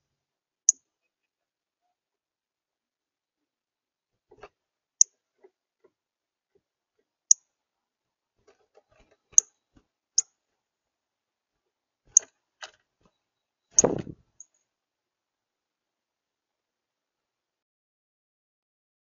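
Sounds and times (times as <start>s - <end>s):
bird rustling thump: 13.8s - 14.2s.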